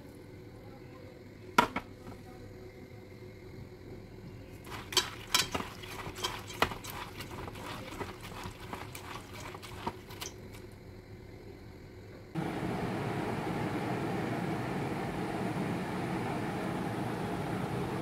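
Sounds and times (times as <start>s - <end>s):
wet beans clicking in a metal bowl: 4.6s - 10.7s.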